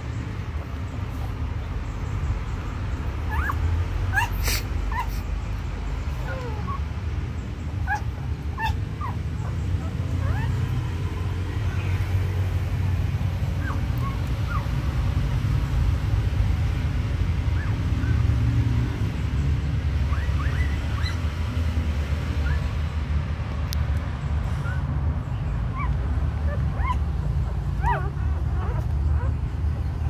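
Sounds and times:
puppies squeaking and whimpering: 3.0s - 11.4s, 13.4s - 14.9s, 17.5s - 18.4s, 19.9s - 21.6s, 22.3s - 22.8s, 24.5s - 30.0s.

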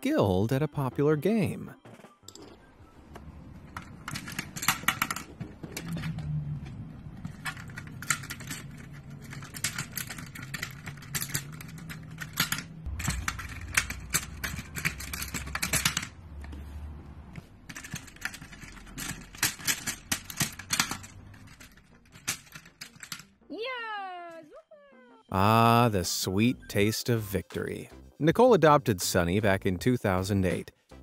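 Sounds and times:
low hum: 2.3s - 22.5s
plastic discs clicking and rattling: 3.1s - 23.3s.

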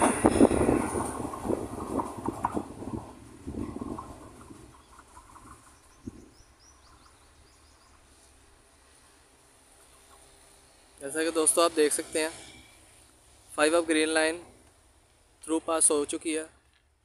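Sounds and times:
train wheels clattering over rail joints: 0.0s - 7.2s
faint bird chirps: 4.7s - 8.3s.

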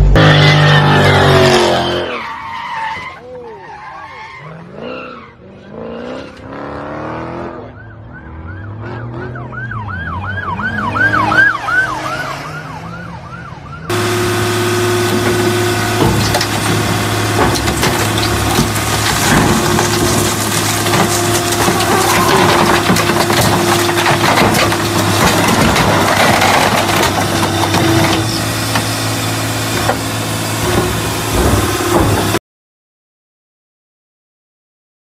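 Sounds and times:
siren yelp: 7.4s - 14.2s
hydraulic press humming: 13.9s - 26.1s, 26.8s - 32.4s
tyres squealing: 14.0s - 29.8s
metal cracking and creaking: 14.9s - 28.9s.

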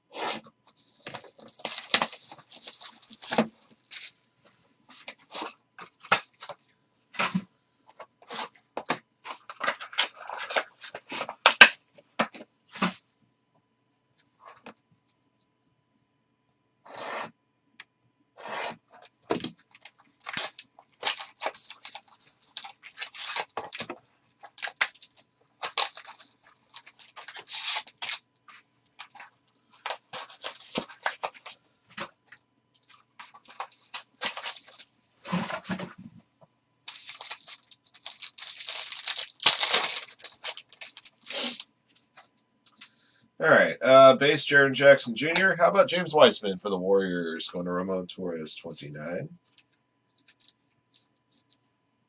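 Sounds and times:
plastic wrapping crinkling and tearing: 0.8s - 4.2s, 19.0s - 28.2s, 29.0s - 32.1s, 32.8s - 35.8s, 36.9s - 42.2s, 50.2s - 51.7s.

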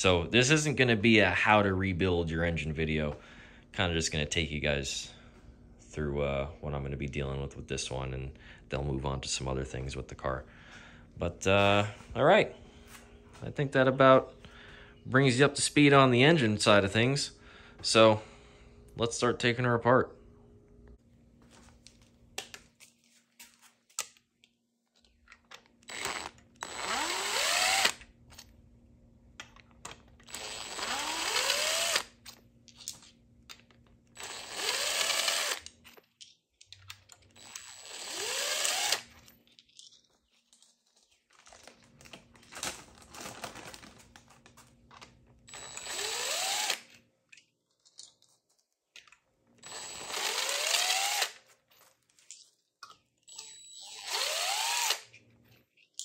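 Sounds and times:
cordless power tool bursts: 25.8s - 28.0s, 30.2s - 32.2s, 34.2s - 35.6s, 37.4s - 39.1s, 45.5s - 46.9s, 49.6s - 51.4s, 53.3s - 55.1s.

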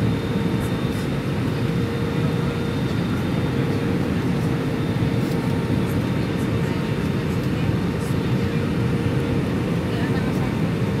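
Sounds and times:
airliner engines rumbling: 0.0s - 11.0s.

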